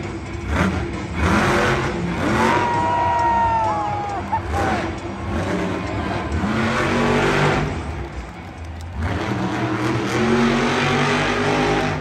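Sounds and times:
truck engine revving hard: 0:00.0 - 0:08.2, 0:08.8 - 0:12.0.

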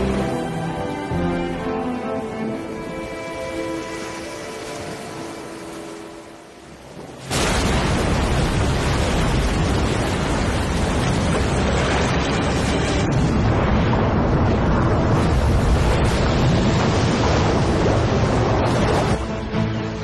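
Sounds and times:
churning water roar: 0:00.0 - 0:20.0
deep rumble: 0:07.3 - 0:19.7.

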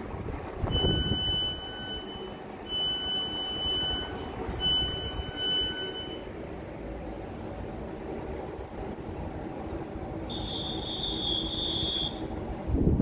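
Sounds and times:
low rumble of standing train: 0:00.0 - 0:13.0
train door warning beeps: 0:00.7 - 0:06.4, 0:10.3 - 0:12.4.

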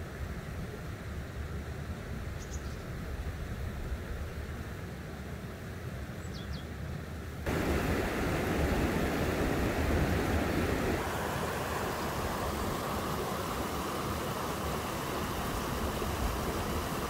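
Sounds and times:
wind on microphone: 0:07.5 - 0:11.1
stream running among rocks: 0:07.5 - 0:17.0.

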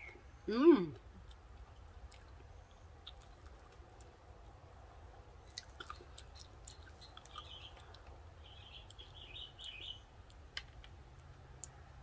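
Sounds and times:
faint bird chirps: 0:06.3 - 0:10.1.

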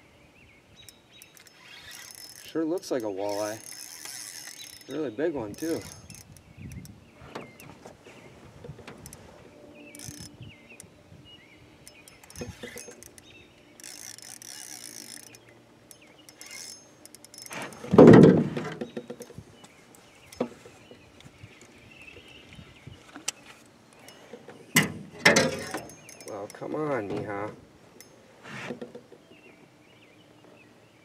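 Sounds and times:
fishing reel clicking: 0:00.8 - 0:06.9, 0:09.9 - 0:10.4, 0:11.8 - 0:17.8, 0:25.6 - 0:26.6.

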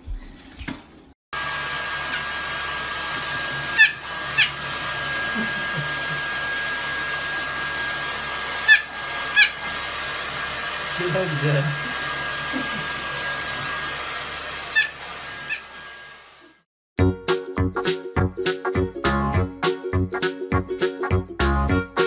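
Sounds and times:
hair dryer blowing: 0:01.4 - 0:16.7
small dog yapping: 0:03.7 - 0:04.6, 0:08.6 - 0:09.6, 0:14.7 - 0:15.7.

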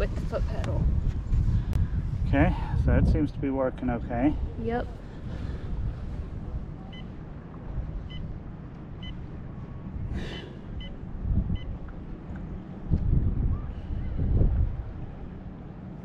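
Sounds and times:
wind buffeting microphone: 0:00.0 - 0:16.0
short electronic beeps: 0:10.8 - 0:11.7.

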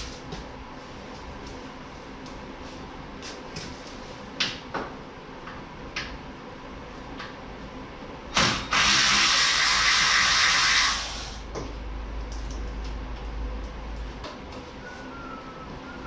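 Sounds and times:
power tool running: 0:08.4 - 0:11.4.

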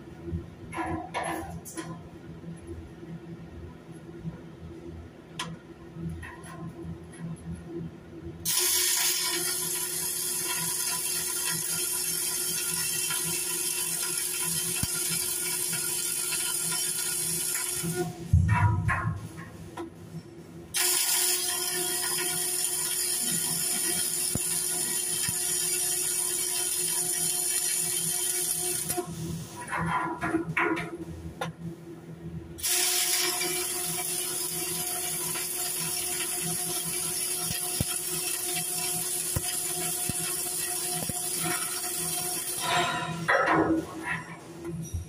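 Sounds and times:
arc welding hiss: 0:08.5 - 0:18.3, 0:20.8 - 0:29.8, 0:32.6 - 0:43.3.

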